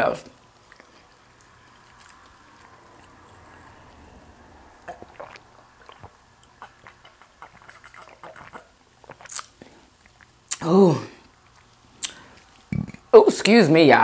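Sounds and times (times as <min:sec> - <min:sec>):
mouth clicks: 0:04.8 - 0:13.0
person swallowing gulps: 0:04.8 - 0:13.1.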